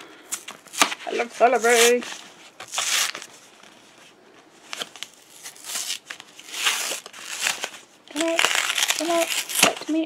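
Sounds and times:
plastic packaging crinkling: 4.6 - 10.0.

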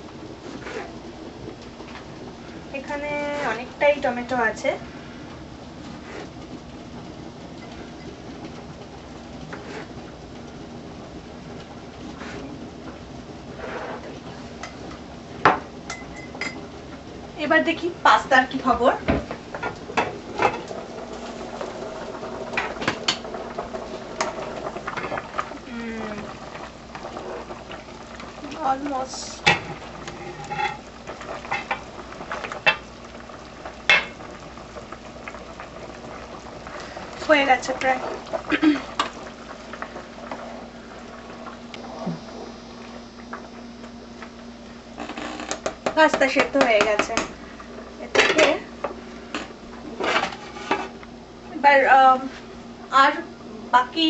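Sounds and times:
water boiling and bubbling: 0.0 - 54.0.

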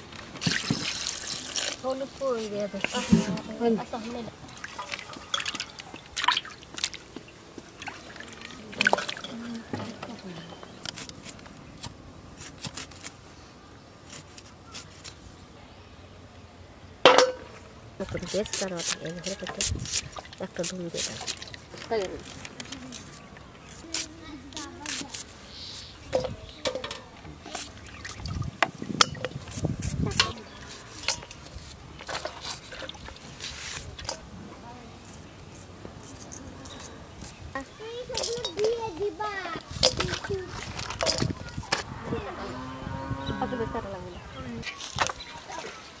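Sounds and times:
metal pots and utensils clattering: 2.8 - 3.6, 8.8 - 10.5, 17.1 - 17.5, 30.1 - 31.4, 38.1 - 38.8, 39.8 - 41.5.

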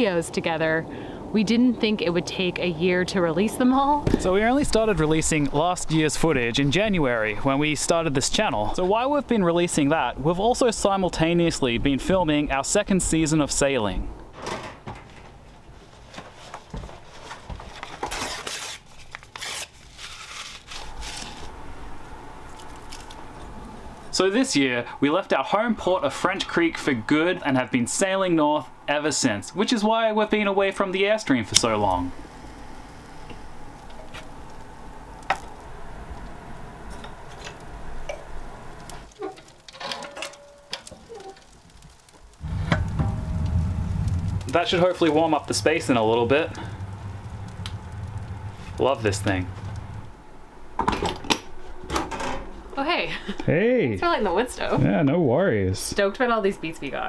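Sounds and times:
paper tearing and crumpling: 16.3 - 21.6
metal stove door and latch: 39.2 - 41.0.

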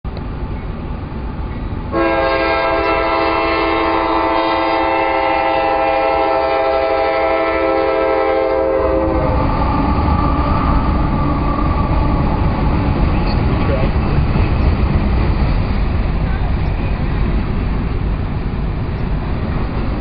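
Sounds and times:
freight train rumbling: 0.0 - 20.0
locomotive air horn chord: 1.9 - 9.4.

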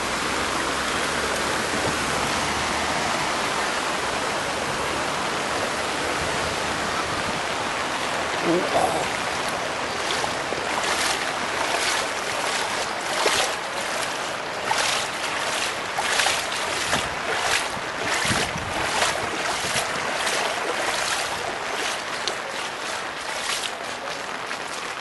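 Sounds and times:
feet splashing through water: 7.3 - 25.0.

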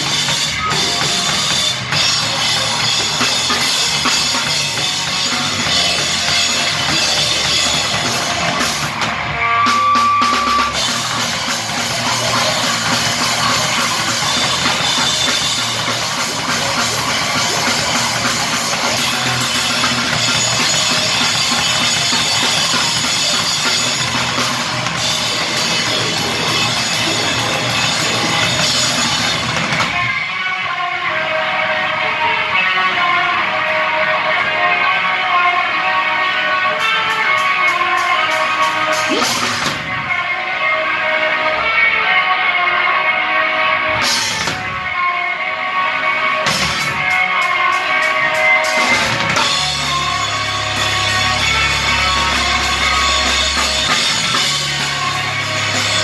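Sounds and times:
drum kit hitting hard: 0.0 - 30.0, 38.9 - 40.0
live rock band playing: 0.0 - 56.0.

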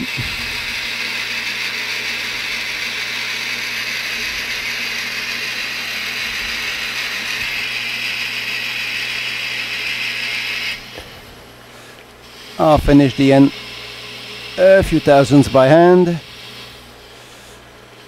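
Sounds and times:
lathe cutting metal hiss and scrape: 0.0 - 17.8
low machine hum: 0.0 - 18.0.

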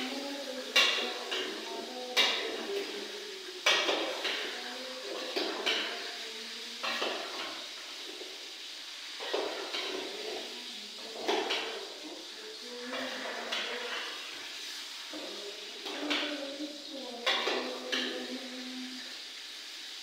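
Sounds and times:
steady background hiss: 0.0 - 20.0
ladle knocking and scraping pot: 9.2 - 10.4.

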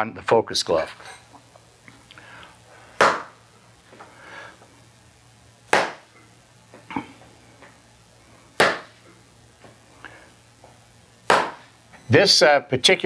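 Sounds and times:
punches smacking a focus mitt: 3.0 - 3.3, 5.7 - 6.0, 8.6 - 8.9, 11.3 - 11.6.

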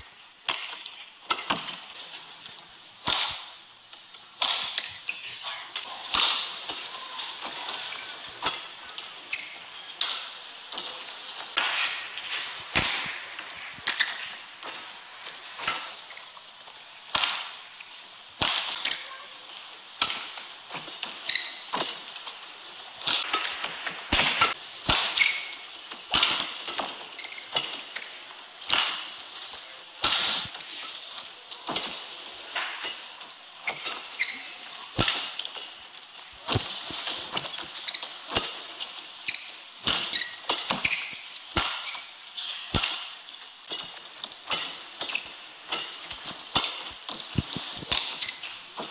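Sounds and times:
shoes squeaking on court: 4.7 - 11.2, 21.2 - 21.9, 27.0 - 27.7, 32.8 - 35.4, 36.4 - 42.8, 44.5 - 48.9.

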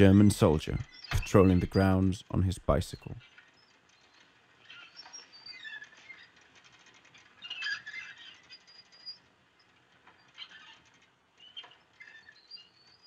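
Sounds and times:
faint high squeaks and chirps: 2.9 - 13.0.

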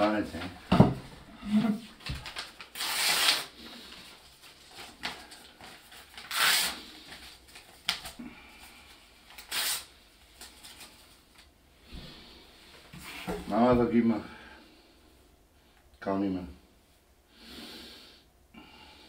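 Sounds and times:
paper rustling and crinkling: 1.6 - 11.5.

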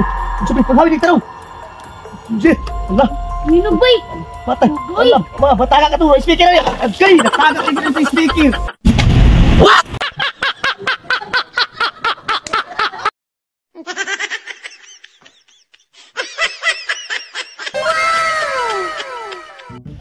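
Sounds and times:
man laughing hard: 7.1 - 8.8, 9.6 - 13.1, 13.8 - 19.8.

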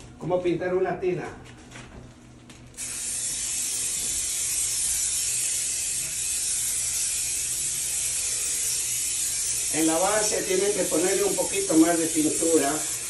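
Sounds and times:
aerosol can spraying hiss: 2.8 - 13.0.

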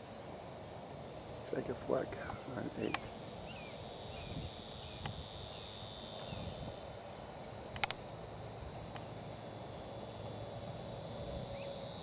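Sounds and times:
insects droning: 0.0 - 12.0
sharp click: 7.7 - 8.0.

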